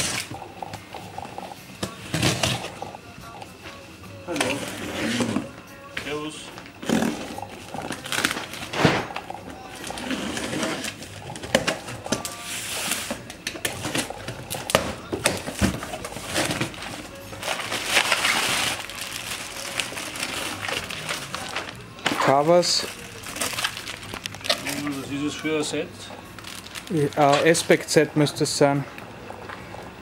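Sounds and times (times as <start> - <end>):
packing tape pulled off: 6.8 - 9.2, 15.3 - 25.0
bubble wrap rustling: 6.8 - 25.7, 26.3 - 27.7.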